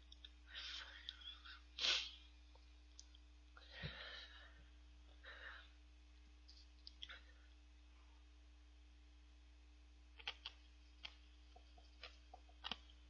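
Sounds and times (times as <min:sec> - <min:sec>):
soft eating noises: 0:00.0 - 0:04.2, 0:05.4 - 0:08.3, 0:10.1 - 0:13.0.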